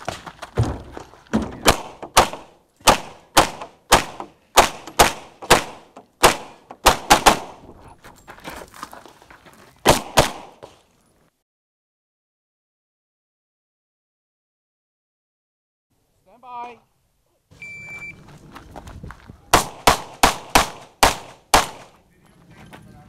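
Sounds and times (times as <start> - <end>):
pistol firing rapid shots: 1.6 - 7.6, 9.9 - 10.6, 19.5 - 21.9.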